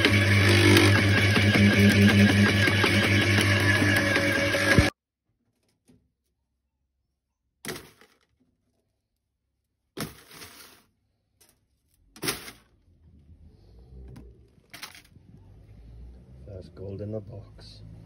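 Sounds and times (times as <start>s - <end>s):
cable dropped into plastic crate: 7.6s - 8.5s.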